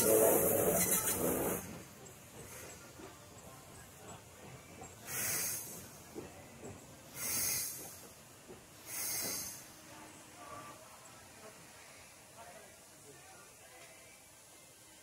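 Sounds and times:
steam locomotive hissing: 0.0s - 13.0s.

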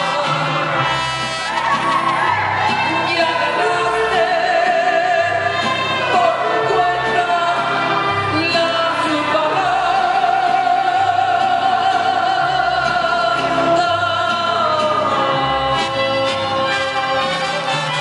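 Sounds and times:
woman singing: 0.0s - 0.8s, 2.7s - 16.1s
bass line: 0.0s - 18.0s
violins: 0.0s - 18.0s.

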